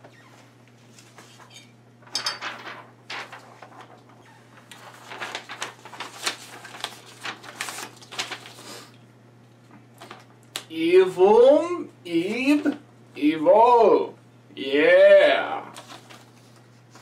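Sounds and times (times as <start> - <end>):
paper rustling played backwards: 2.4 - 8.6, 15.7 - 17.0.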